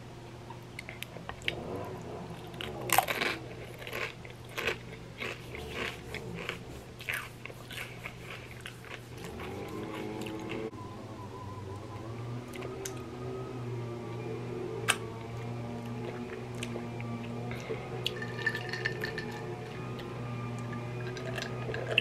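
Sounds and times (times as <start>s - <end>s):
person crunching chips: 2.5s - 10.6s
chewing crisp crunches: 2.5s - 10.7s.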